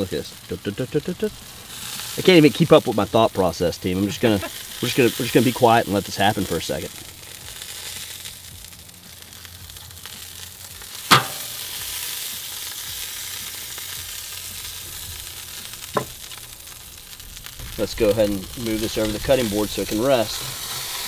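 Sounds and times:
meat sizzling on a grill: 0:00.0 - 0:21.0
sharp tap: 0:11.1 - 0:11.5.

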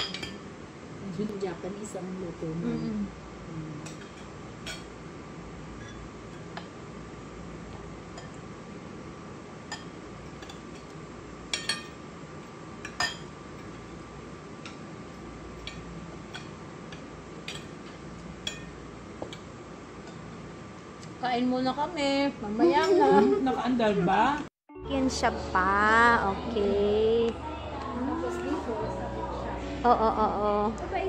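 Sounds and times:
spoons clinking on bowls: 0:00.0 - 0:00.4, 0:09.7 - 0:12.0, 0:12.8 - 0:13.8, 0:18.4 - 0:20.2
steady low hum: 0:00.0 - 0:31.0.

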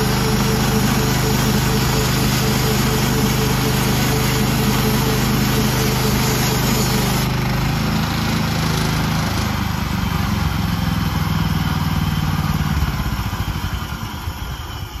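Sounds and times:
gas engine under load: 0:00.0 - 0:15.0
band blade cutting log: 0:00.2 - 0:07.3.

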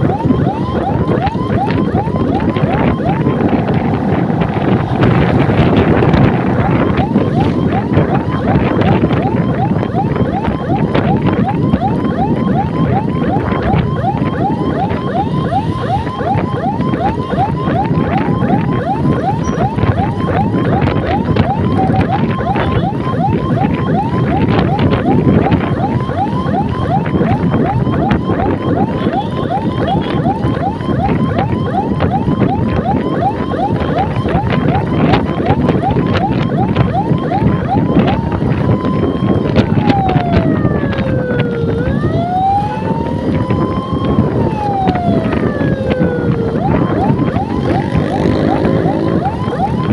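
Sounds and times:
electronic siren yelping: 0:00.0 - 0:49.9
wind on microphone: 0:00.0 - 0:49.9
motor scooter running: 0:47.4 - 0:49.9.

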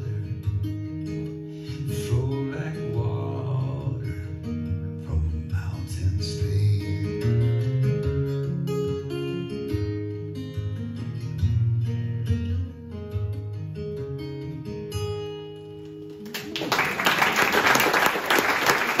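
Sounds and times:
acoustic guitar picking: 0:00.0 - 0:16.3
audience applause: 0:16.2 - 0:19.0.

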